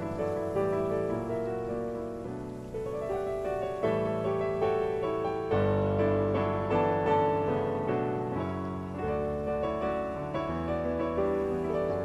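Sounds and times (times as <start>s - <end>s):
slow piano music: 0.0s - 12.0s.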